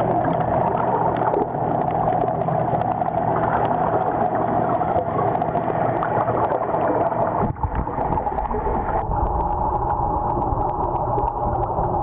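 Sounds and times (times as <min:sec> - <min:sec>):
underwater air bubbles rushing: 0:00.0 - 0:12.0.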